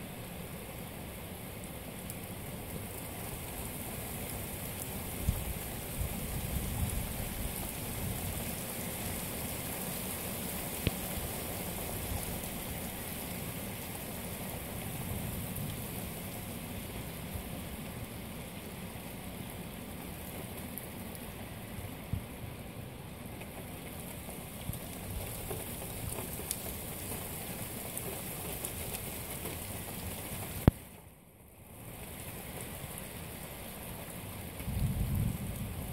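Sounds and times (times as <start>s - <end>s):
rain falling: 0.0s - 35.9s
wind gusts rumbling: 34.6s - 35.9s.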